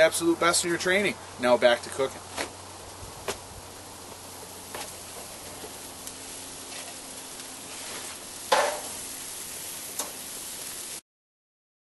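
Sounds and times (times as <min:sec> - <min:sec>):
chicken sizzling on a grill: 0:00.0 - 0:11.0
sharp metallic clank: 0:08.5 - 0:09.0.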